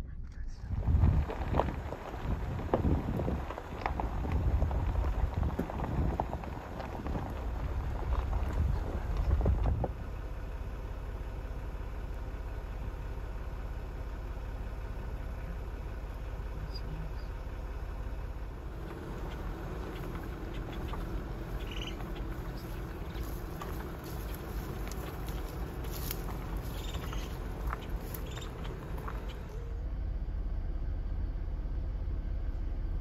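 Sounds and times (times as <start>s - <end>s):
faint steady hum: 0.0s - 33.0s
vehicle engine idling: 0.0s - 33.0s
wind buffeting microphone: 0.6s - 10.2s, 18.7s - 29.5s.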